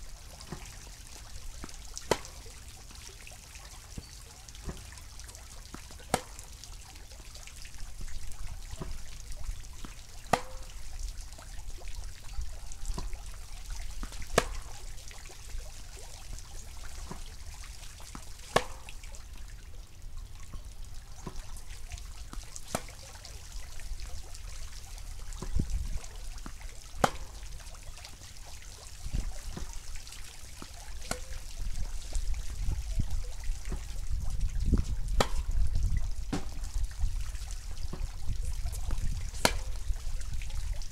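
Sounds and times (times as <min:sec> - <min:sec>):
tennis ball bounces: 0:01.6 - 0:02.4, 0:05.7 - 0:06.4, 0:09.8 - 0:10.7, 0:12.9 - 0:13.1, 0:14.0 - 0:14.8, 0:17.0 - 0:17.3, 0:18.2 - 0:19.0, 0:21.2 - 0:21.5, 0:22.3 - 0:23.1, 0:26.4 - 0:27.4, 0:30.6 - 0:31.4, 0:34.8 - 0:35.5, 0:36.3 - 0:36.6, 0:37.9 - 0:38.2, 0:38.8 - 0:39.8
tennis racket hitting ball: 0:02.1 - 0:02.4, 0:06.1 - 0:06.4, 0:10.3 - 0:10.7, 0:14.0 - 0:14.7, 0:18.2 - 0:19.0, 0:22.7 - 0:23.0, 0:26.4 - 0:27.4, 0:30.6 - 0:31.3, 0:35.2 - 0:35.5, 0:36.3 - 0:36.6, 0:39.4 - 0:39.7.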